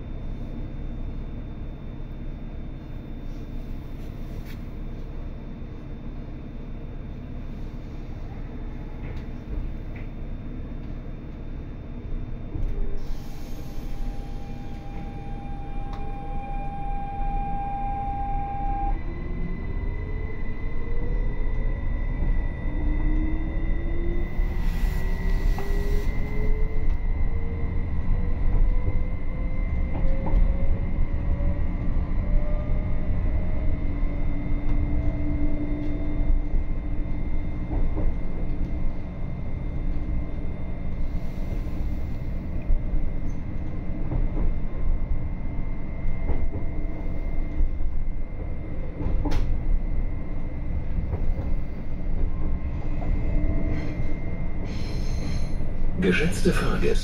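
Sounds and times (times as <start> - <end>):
train traction motor whine: 0.0 - 57.0.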